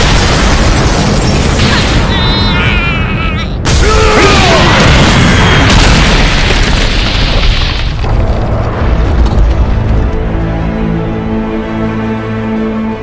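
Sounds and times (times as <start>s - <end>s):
person yelling: 3.7s - 4.8s
low rumble: 4.8s - 11.5s.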